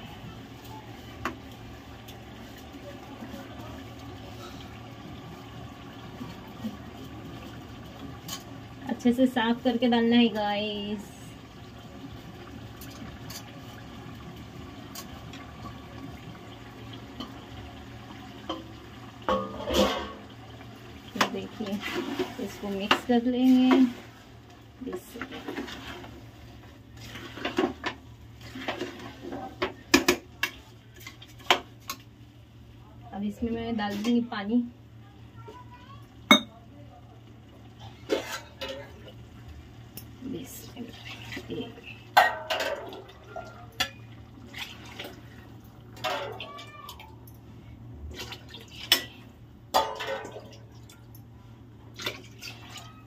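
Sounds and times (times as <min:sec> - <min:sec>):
water pouring and splashing: 0:11.1 - 0:29.6, 0:40.7 - 0:47.3, 0:48.1 - 0:49.2, 0:49.8 - 0:51.2, 0:51.9 - 0:53.0.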